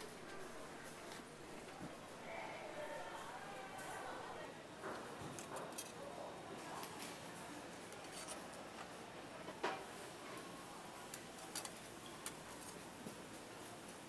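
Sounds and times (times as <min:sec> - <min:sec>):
metal tongs clicking on griddle: 0:11.1 - 0:12.9.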